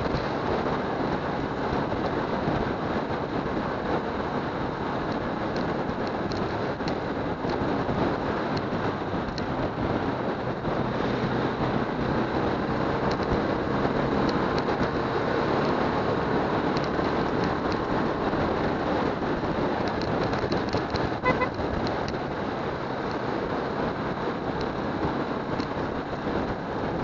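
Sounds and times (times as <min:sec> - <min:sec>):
wind and road rush: 0:00.0 - 0:27.0
motorcycle engine running: 0:20.2 - 0:21.7.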